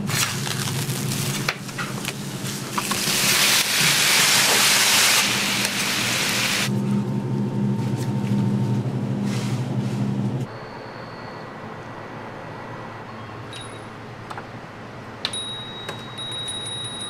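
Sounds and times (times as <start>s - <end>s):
loud low hum: 6.7s - 15.2s
high entry chime: 13.2s - 14.1s, 15.3s - 17.0s.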